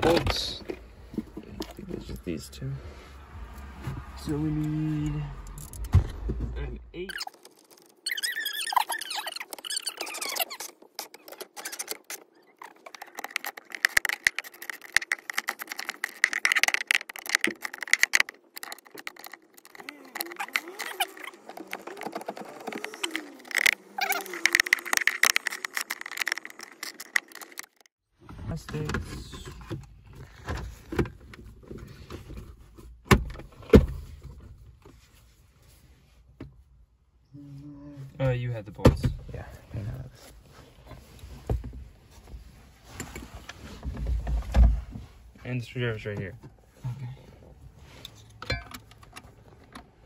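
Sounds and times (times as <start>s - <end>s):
plastic trim rattling: 9.0s - 27.8s.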